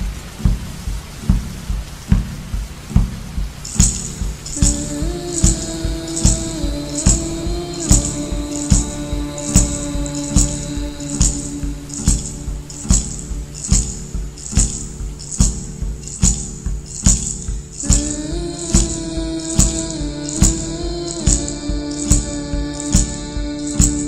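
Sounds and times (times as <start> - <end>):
slow beat: 0.0 - 24.0
sustained sliding melody: 3.7 - 15.4.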